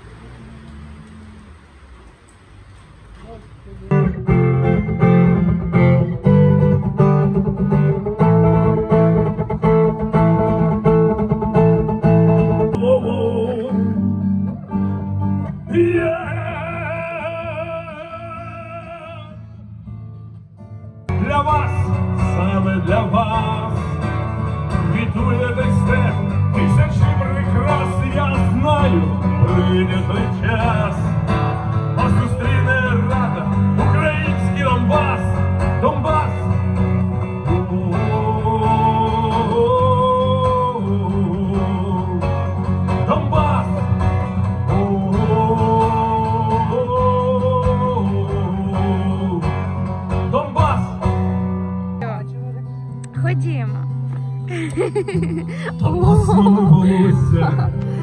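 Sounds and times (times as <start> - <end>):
strummed acoustic guitar: 3.8 - 58.0
man singing: 12.6 - 14.4, 15.4 - 19.6, 21.1 - 51.2, 55.5 - 58.0.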